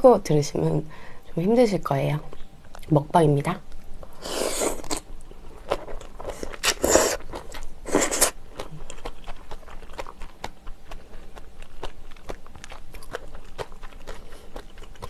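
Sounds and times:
wet chewing: 3.6s - 15.0s
noodle slurping: 4.2s - 5.0s, 5.7s - 8.4s.

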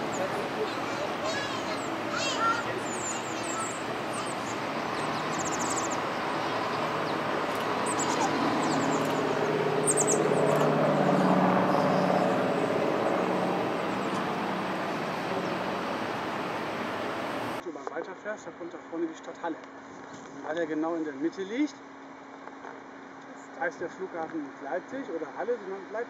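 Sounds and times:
propeller plane engines droning: 0.0s - 17.6s.

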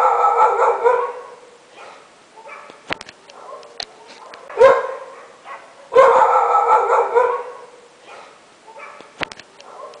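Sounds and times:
dog howling bark: 0.0s - 2.7s, 3.3s - 10.0s
sharp click: 2.7s - 3.4s, 9.0s - 9.7s.

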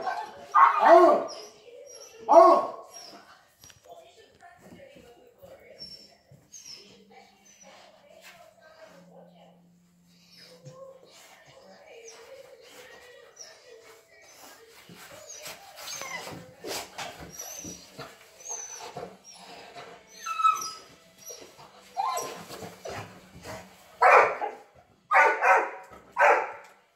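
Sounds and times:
dog barking: 0.0s - 1.4s, 2.3s - 2.9s, 24.0s - 26.6s
dog whining and whimpering: 15.3s - 23.1s.

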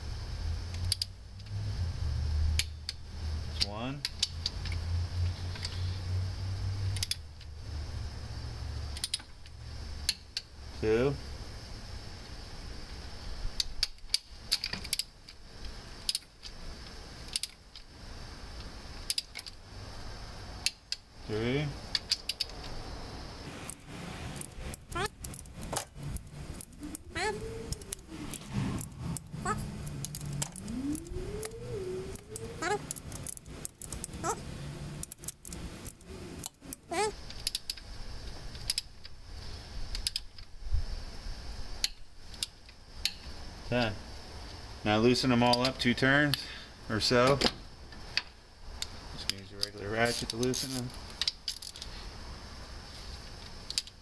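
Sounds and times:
torque wrench clicking: 0.7s - 1.6s, 2.5s - 3.0s, 6.8s - 7.5s, 8.9s - 10.5s, 19.0s - 19.6s
short rising squeaks: 26.0s - 32.9s.

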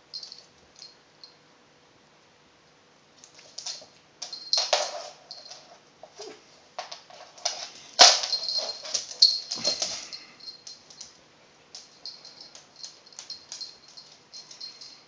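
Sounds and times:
animals scuffling: 3.2s - 15.0s
claws clicking on floor: 3.2s - 15.0s.

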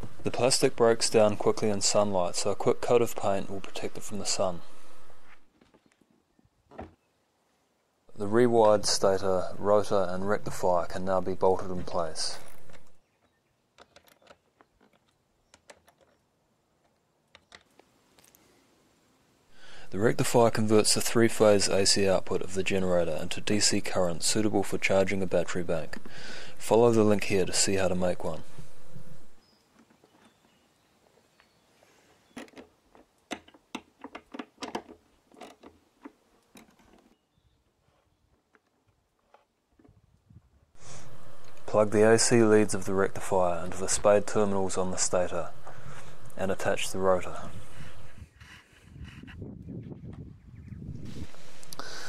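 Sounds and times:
irregular clicks and light knocks: 12.4s - 18.4s, 32.3s - 37.2s.

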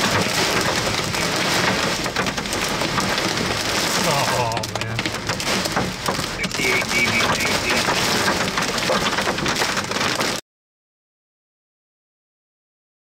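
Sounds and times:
heavy rain on vehicle windshield: 0.0s - 10.4s.

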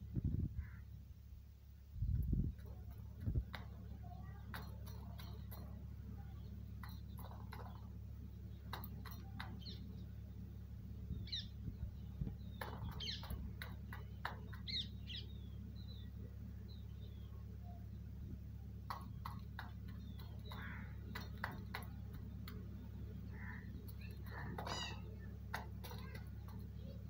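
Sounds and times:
low hum: 0.0s - 27.0s
beak tapping metal tin: 2.6s - 10.1s, 12.5s - 15.1s, 18.8s - 27.0s
high bird chirps: 8.4s - 18.2s, 18.9s - 27.0s.

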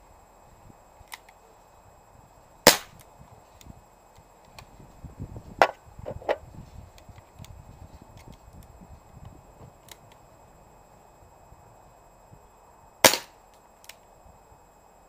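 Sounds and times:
air revolver shot crack: 2.7s - 3.0s, 13.0s - 13.4s.

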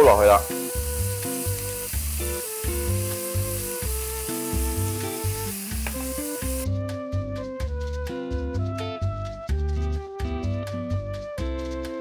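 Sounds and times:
meat sizzling in a pan: 0.0s - 6.6s
background music with bass beat: 0.8s - 12.0s.

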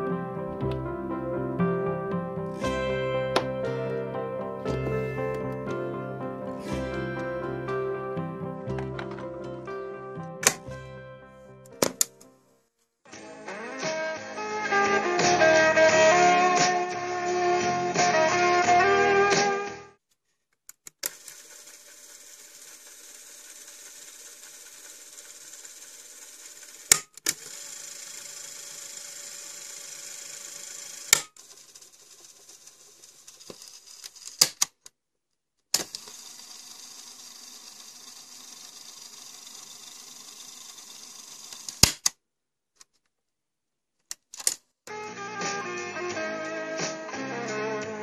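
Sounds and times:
sharp clicks of buttons: 10.3s - 10.7s
cassette tape mechanism whirring: 10.4s - 10.7s, 20.9s - 34.6s, 35.8s - 42.1s.

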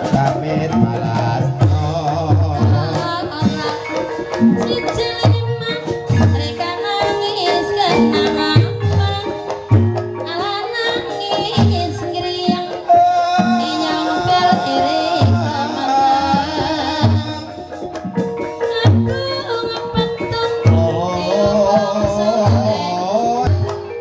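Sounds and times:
hand drum beat: 0.0s - 24.0s
metallophone tones: 0.0s - 24.0s
high voice singing: 11.6s - 17.7s, 19.8s - 23.8s.

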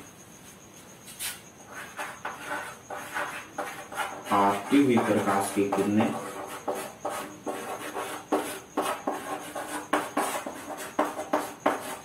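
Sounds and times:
chalk scratching on chalkboard: 1.1s - 12.0s.

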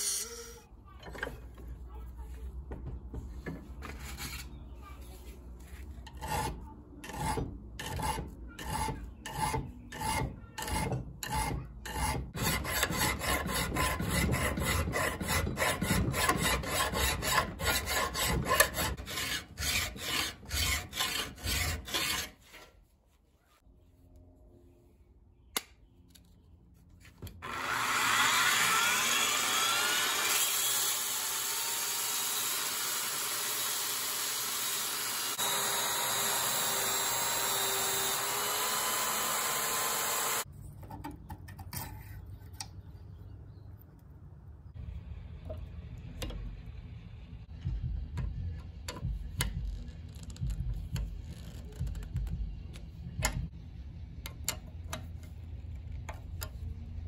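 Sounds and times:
belt sander grinding knife blade: 27.5s - 40.5s.

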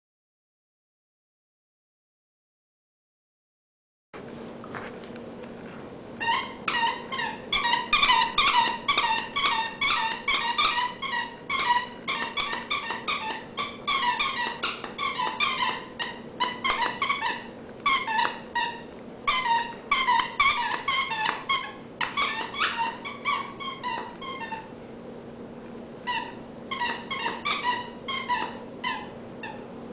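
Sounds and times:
squeaky dog toy squeaking: 6.2s - 24.7s, 26.0s - 29.7s.

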